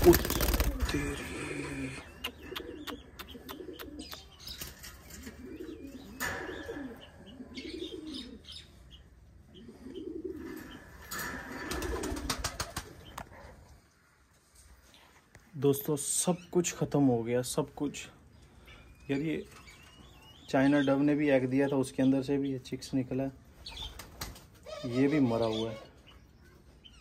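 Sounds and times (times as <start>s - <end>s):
wing flaps rustling: 0.0s - 1.1s, 11.2s - 13.1s
pigeons cooing: 0.0s - 13.9s.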